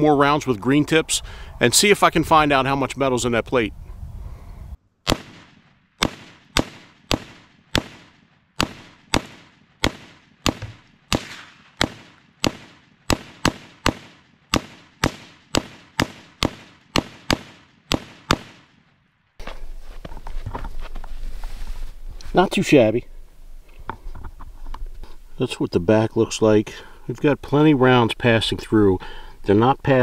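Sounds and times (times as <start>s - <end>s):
rifle gunshots with echo: 5.1s - 18.8s.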